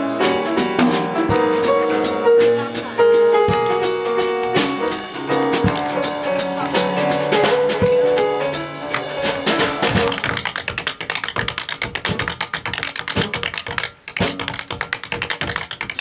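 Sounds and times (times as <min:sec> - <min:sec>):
jazz saxophone piano and drums: 0:00.0 - 0:16.0
tap shoes on wooden stage: 0:01.3 - 0:01.8, 0:05.5 - 0:07.0, 0:07.8 - 0:16.0.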